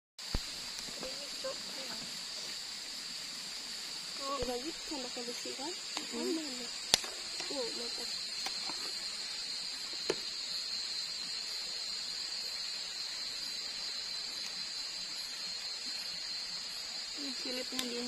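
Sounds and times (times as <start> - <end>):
sharp pop from fire: 0.2 - 1.1, 6.8 - 7.6, 10.0 - 10.3
ember fire hissing and crackling: 0.2 - 18.0
night insects chorus: 0.2 - 18.0.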